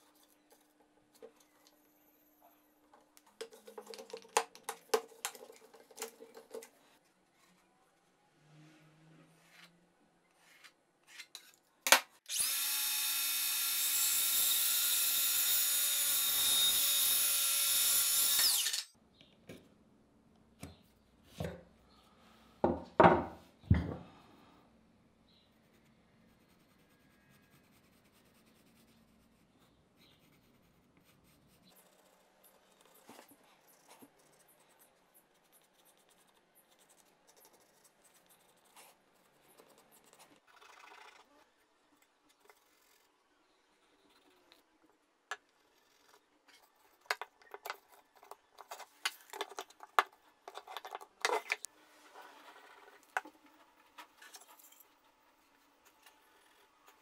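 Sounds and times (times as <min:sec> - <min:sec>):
power tool running: 0:12.3 - 0:18.9
pencil scratching on plywood: 0:25.5 - 0:40.5.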